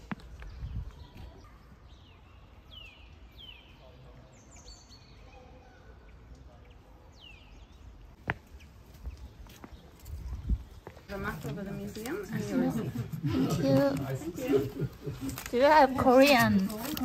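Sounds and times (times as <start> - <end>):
small birds chirping: 0.0 - 13.2
low outdoor background noise: 0.0 - 17.0.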